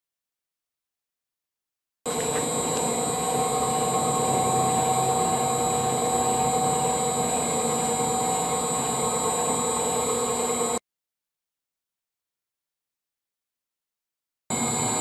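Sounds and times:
cutting machine motor hum and whine: 0:02.1 - 0:10.8, 0:14.5 - 0:15.0.

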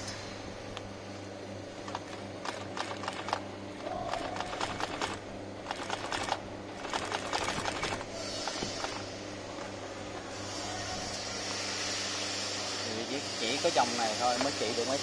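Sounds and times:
sewing machine stitching: 0:01.9 - 0:03.4, 0:04.1 - 0:09.1.

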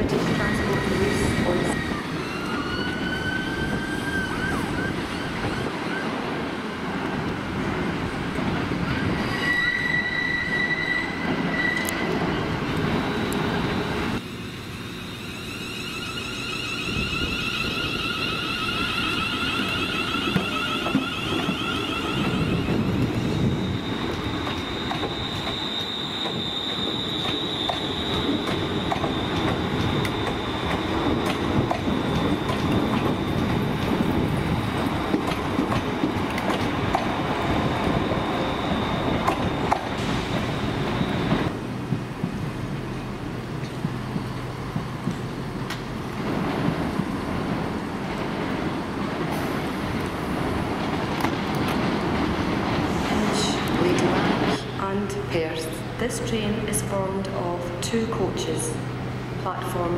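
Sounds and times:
train wheels rumbling on rails: 0:00.0 - 0:59.9
high wheel squeal: 0:00.2 - 0:06.0, 0:08.9 - 0:12.1, 0:14.6 - 0:34.3, 0:37.4 - 0:41.5.

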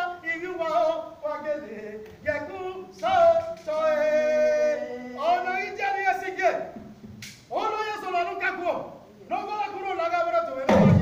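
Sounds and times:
person singing unaccompanied: 0:00.0 - 0:06.8.

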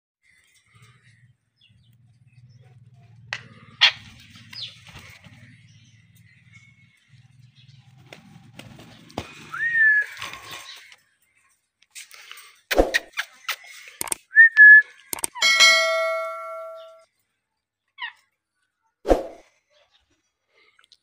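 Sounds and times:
sharp clicks: 0:14.0 - 0:15.4.

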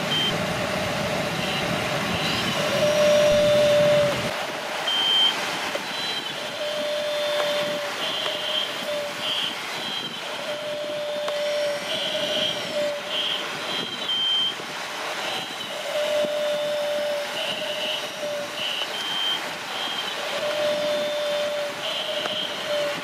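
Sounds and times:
electric motors whining: 0:00.9 - 0:04.3, 0:06.6 - 0:14.1, 0:20.2 - 0:23.0.

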